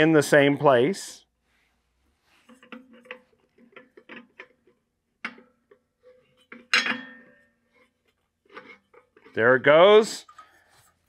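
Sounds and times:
small metallic clicks and scrapes: 0:02.3 - 0:06.9, 0:07.6 - 0:11.0
ringing metal clank: 0:06.6 - 0:07.6.

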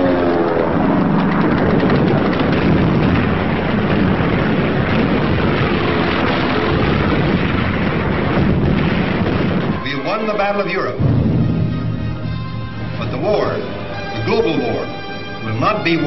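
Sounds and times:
aircraft engines roaring: 0:00.0 - 0:16.0.

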